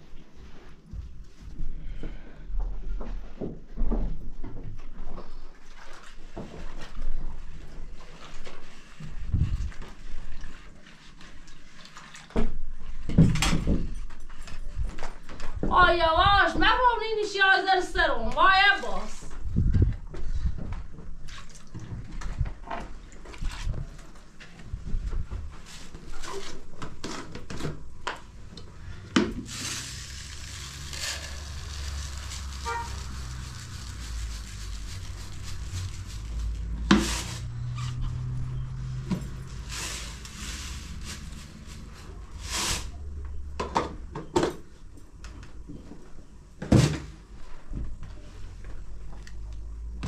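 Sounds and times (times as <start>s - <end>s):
rice pouring into plastic basin: 29.2s - 37.6s, 39.4s - 42.9s
rustling hiss: 29.4s - 37.8s.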